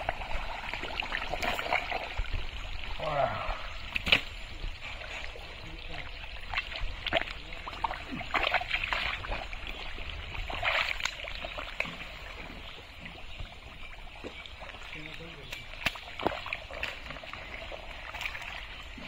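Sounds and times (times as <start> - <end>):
mud squelching and sloshing: 0.0 - 19.0.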